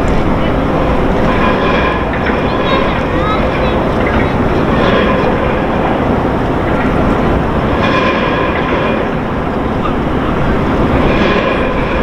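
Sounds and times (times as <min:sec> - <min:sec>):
pump engine running loudly: 0:00.0 - 0:12.0.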